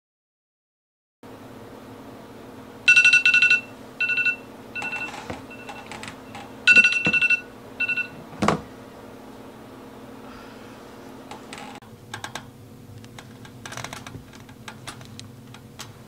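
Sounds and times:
smartphone rapid beeps: 2.9 - 5.9, 6.7 - 8.2.

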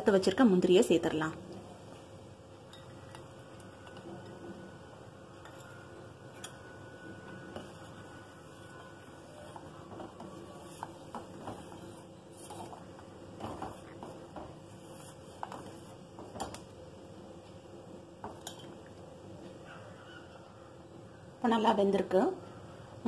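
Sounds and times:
ladle clinking and scraping pot: 5.3 - 15.9.

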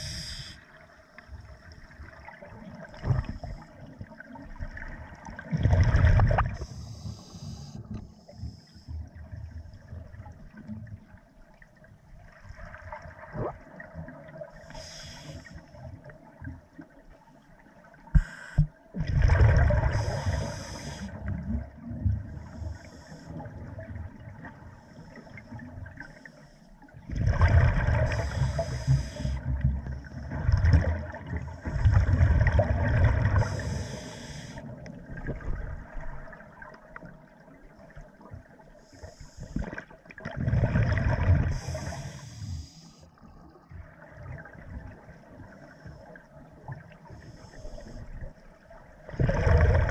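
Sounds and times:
diver breathing through regulator: 0.0 - 0.7, 6.6 - 9.0, 14.6 - 15.7, 18.1 - 18.7, 19.8 - 21.2, 28.1 - 29.4, 33.4 - 34.7, 38.8 - 39.8, 41.4 - 43.1, 47.0 - 48.3
exhaled bubbles gurgling: 1.8 - 8.2, 12.2 - 16.7, 18.9 - 26.2, 27.0 - 38.5, 39.3 - 49.9.

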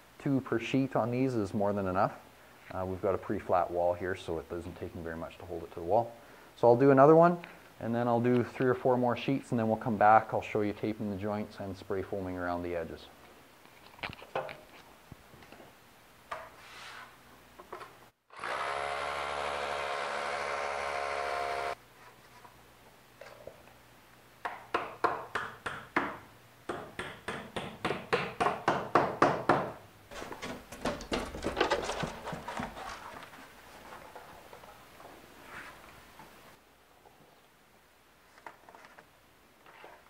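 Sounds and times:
hammer drill boring into concrete: 18.3 - 21.8.

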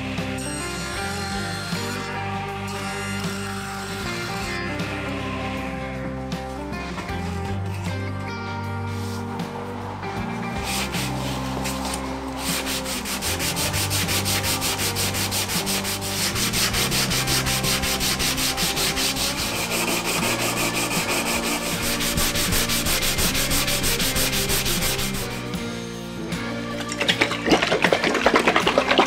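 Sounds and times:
sanding block rasping on wood: 0.0 - 5.0, 10.6 - 25.5.

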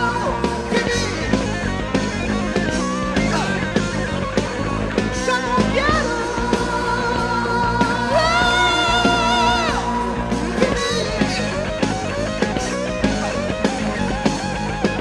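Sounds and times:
rock song: 0.0 - 15.0.

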